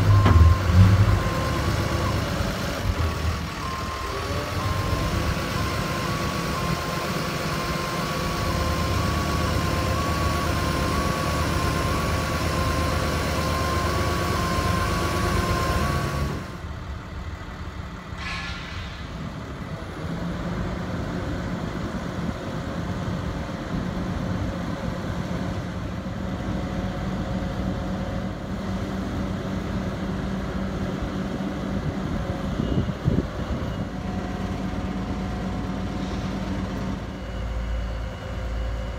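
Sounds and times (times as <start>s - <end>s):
alarm beeping slowly: 0.0s - 7.4s, 36.9s - 38.9s
diesel engine running: 0.0s - 38.9s.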